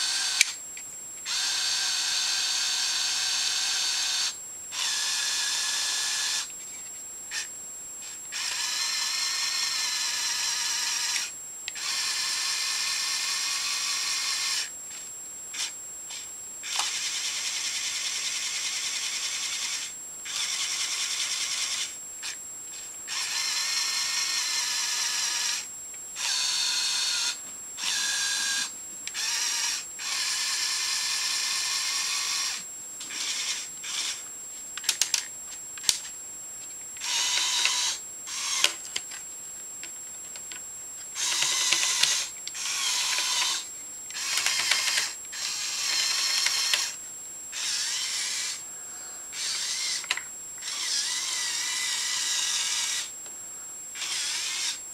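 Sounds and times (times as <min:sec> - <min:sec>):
toy electric motors whirring: 0:00.0 - 0:00.6, 0:01.2 - 0:34.2, 0:34.8 - 0:36.1, 0:37.0 - 0:39.2, 0:41.2 - 0:48.6, 0:49.3 - 0:53.1, 0:54.0 - 0:54.8
sharp clicks: 0:41.2 - 0:45.2.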